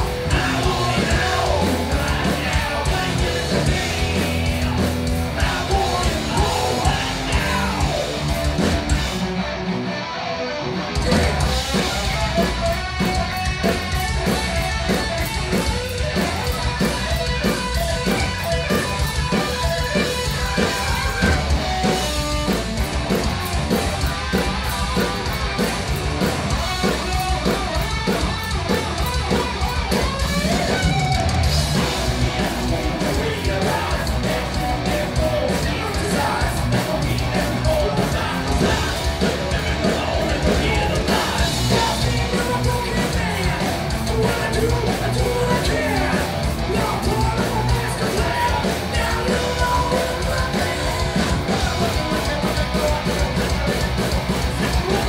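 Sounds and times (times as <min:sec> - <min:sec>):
shouted vocals: 0:00.0 - 0:08.4, 0:30.0 - 0:55.0
live rock band playing: 0:00.0 - 0:55.0.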